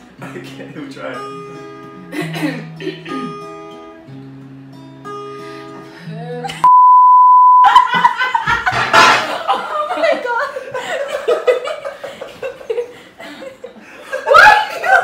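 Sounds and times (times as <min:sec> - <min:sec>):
acoustic guitar: 0:00.0 - 0:06.7, 0:07.7 - 0:09.7
bleep tone: 0:06.6 - 0:07.7
laughter: 0:07.6 - 0:15.0.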